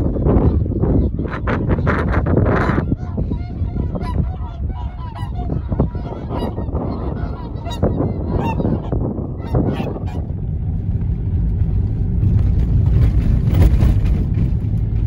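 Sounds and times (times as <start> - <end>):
swans honking in flight: 0.0 - 10.7
steady low rumble: 0.0 - 15.0.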